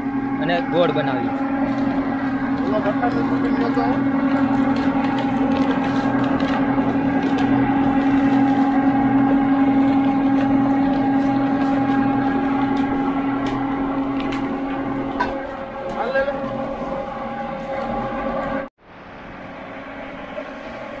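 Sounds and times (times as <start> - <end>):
sugarcane crusher humming: 0.0 - 18.7
cane stalks cracking: 1.6 - 16.1.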